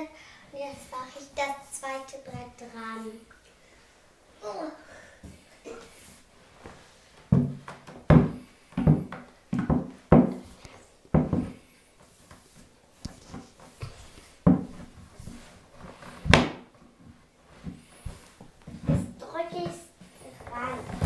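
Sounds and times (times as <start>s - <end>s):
wooden shelf panels knocking: 7.3s - 10.5s, 11.1s - 11.6s, 14.4s - 14.7s.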